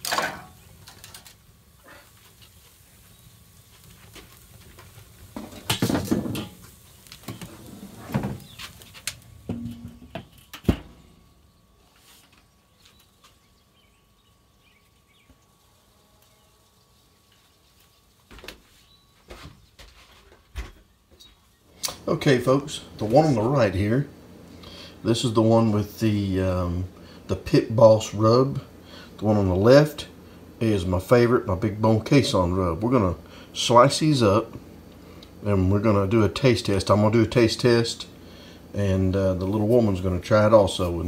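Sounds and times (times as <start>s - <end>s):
metal lid knocking and scraping: 9.5s - 10.8s.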